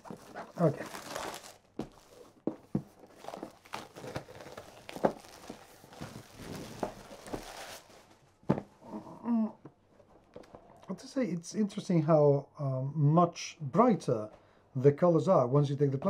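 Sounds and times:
plastic wrap crinkling: 0:00.0 - 0:08.4.

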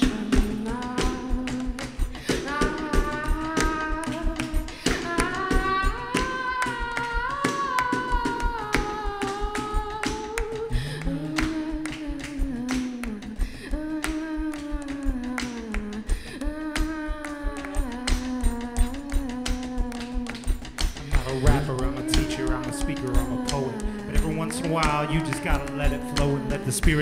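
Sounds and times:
live band with percussive beat: 0:00.0 - 0:27.0
woman singing: 0:00.0 - 0:27.0.

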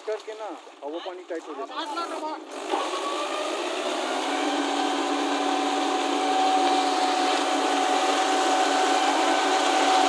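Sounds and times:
wheels churning through mud: 0:01.8 - 0:10.0
tractor diesel engine running hard: 0:02.5 - 0:10.0.

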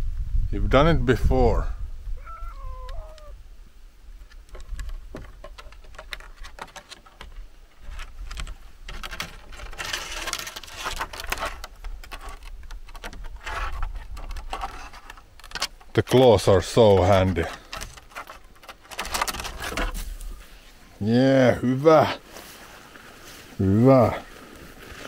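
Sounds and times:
cat claws scratching on wood: 0:04.6 - 0:16.2, 0:17.0 - 0:20.1.

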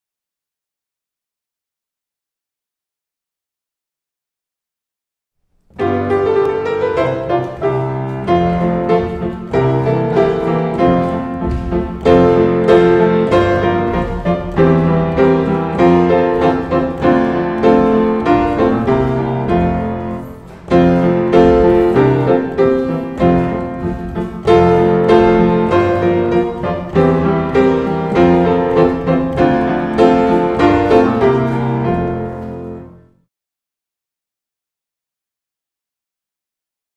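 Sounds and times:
solo piano: 0:05.7 - 0:33.3.

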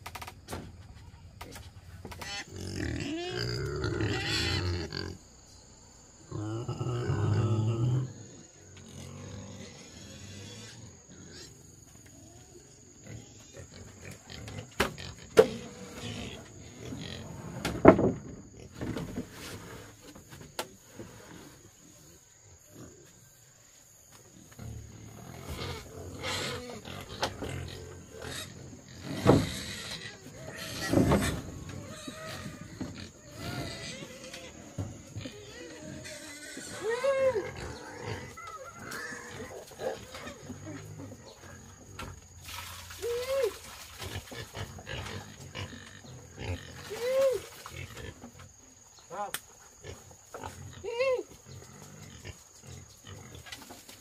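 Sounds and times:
low animal sounds: 0:06.2 - 0:17.9, 0:24.5 - 0:42.2
animal crying: 0:35.3 - 0:40.5.

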